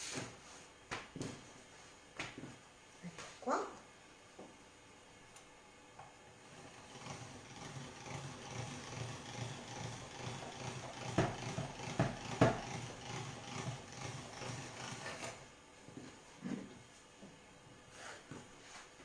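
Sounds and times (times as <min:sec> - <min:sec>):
pasta machine rollers rumbling: 0:06.4 - 0:16.7.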